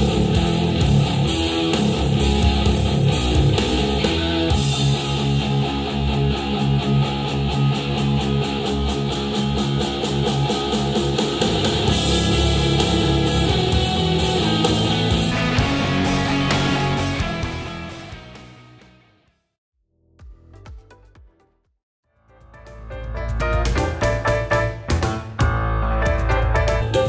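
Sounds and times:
guitar music through speakers: 0.0 - 19.3.

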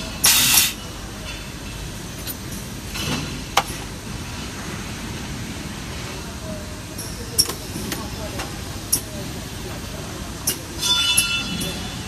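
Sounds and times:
machine hiss: 0.2 - 0.8.

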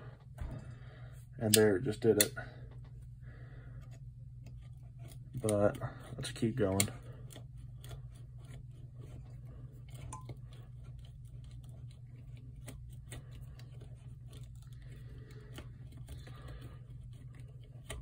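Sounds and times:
steady low hum: 0.0 - 18.0
awl scraping and clicking in wood: 3.7 - 18.0.

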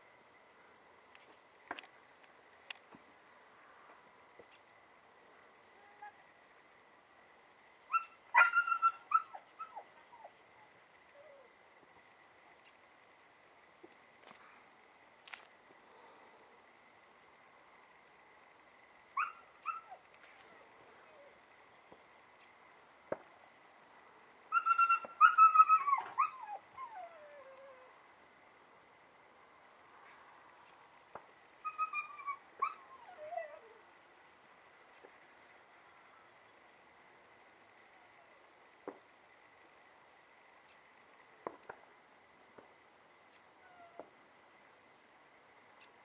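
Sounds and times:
dog whining and yelping: 7.9 - 11.5, 19.2 - 21.4, 24.5 - 28.0, 31.5 - 33.8, 43.1 - 44.1
dog whining: 24.5 - 27.9, 31.5 - 33.8.

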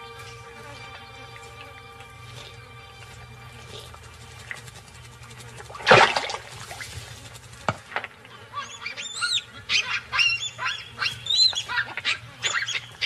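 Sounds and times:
baboons screaming: 8.3 - 13.0.

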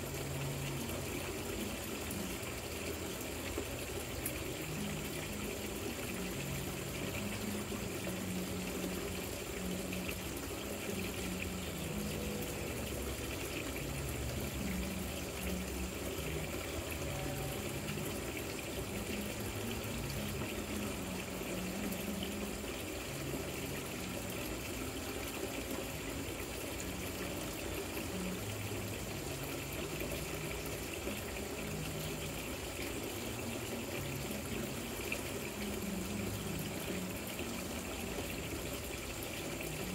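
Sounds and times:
fountain water trickling: 0.0 - 39.9.

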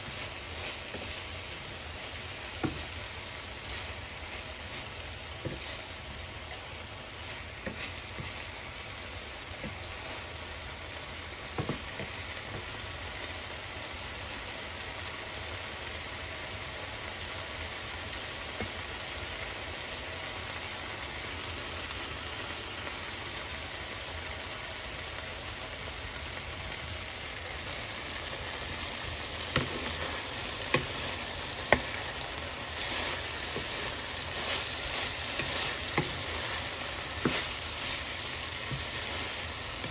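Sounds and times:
food sizzling in a frying pan: 0.0 - 39.9
wooden spatula clicking on pan: 29.4 - 39.9.

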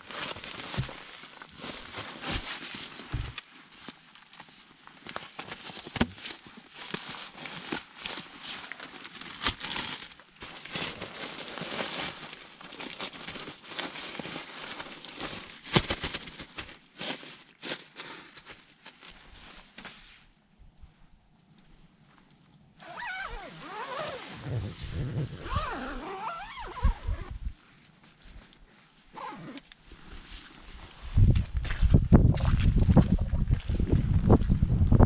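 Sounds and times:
crunching and rustling in snow: 0.0 - 4.3, 5.1 - 20.2, 22.8 - 32.0.

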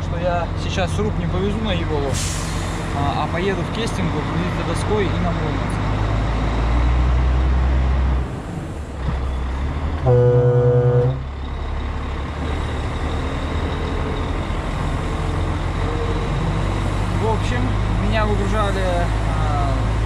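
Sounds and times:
truck diesel engine running: 8.4 - 20.0
truck horn: 10.0 - 11.3.

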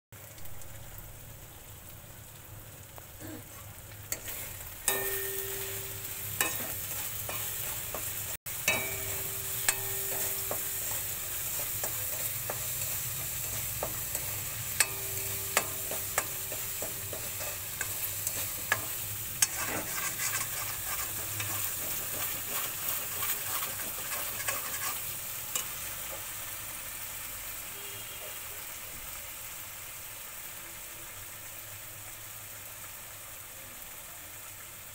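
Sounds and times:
spices sizzling in hot oil: 0.2 - 34.9
metal spoon stirring and scraping: 4.1 - 26.2
spoon clinking on pan: 4.2 - 25.0.

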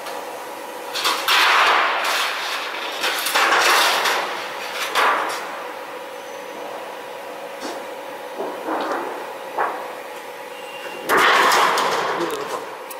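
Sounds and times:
sheet metal rattling and scraping: 1.0 - 5.5, 10.8 - 12.7.

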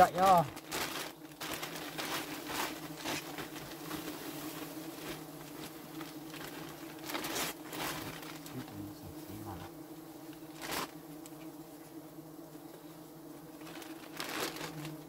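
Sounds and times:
plastic bag crinkling: 0.0 - 4.2, 4.9 - 8.7, 10.5 - 11.0, 13.6 - 14.9
honeybees humming: 0.0 - 15.0.

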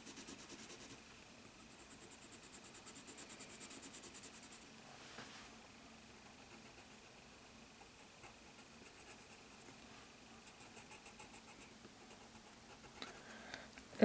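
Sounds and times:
pencil shading on paper: 0.0 - 1.0, 1.6 - 4.6.

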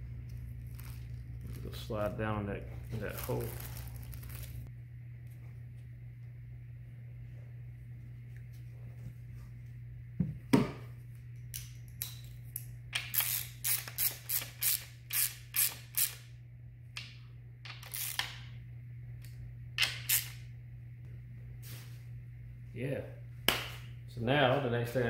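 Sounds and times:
steady low hum: 0.0 - 25.0
hand ratchet clicking: 13.0 - 16.2.

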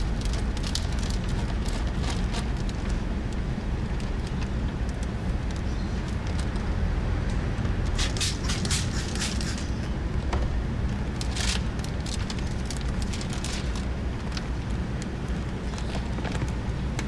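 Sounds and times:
plastic film crackling and rustling: 0.0 - 6.8, 11.0 - 17.0
steady low rumble: 0.0 - 17.0.

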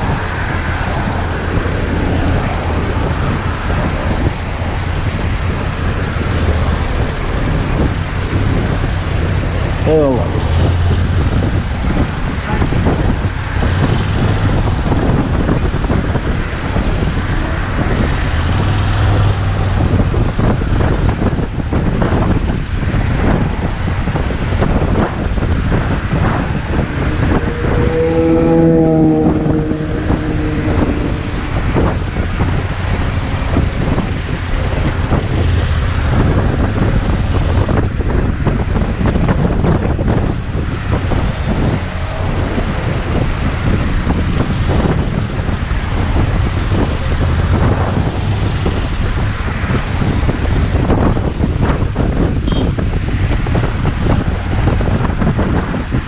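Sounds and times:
road noise: 0.0 - 56.0
wind rushing over microphone: 0.0 - 56.0
wavering pitched tone: 27.0 - 31.6.

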